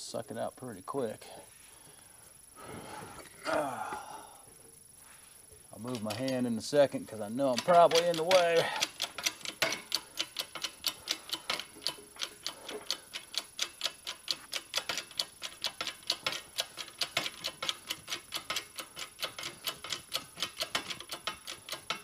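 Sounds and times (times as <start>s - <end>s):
hydraulic press pump ticking: 5.8s - 22.0s.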